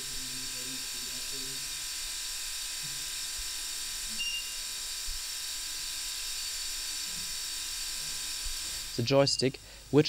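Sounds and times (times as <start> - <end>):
steady hiss: 0.0 - 1.7, 8.0 - 10.0
faint high steady tones: 9.0 - 9.7.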